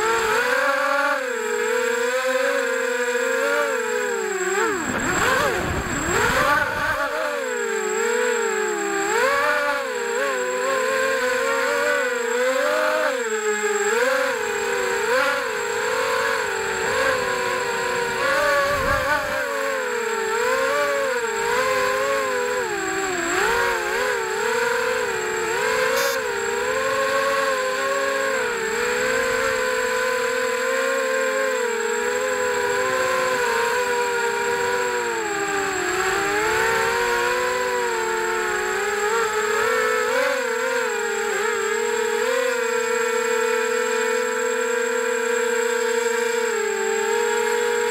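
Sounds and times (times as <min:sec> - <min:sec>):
quadcopter propellers whining: 0:00.0 - 0:47.9
faint steady high tone: 0:25.1 - 0:26.7.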